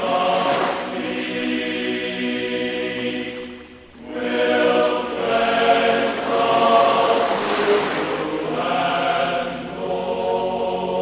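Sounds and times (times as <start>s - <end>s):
choir singing slow chords: 0.0s - 11.0s.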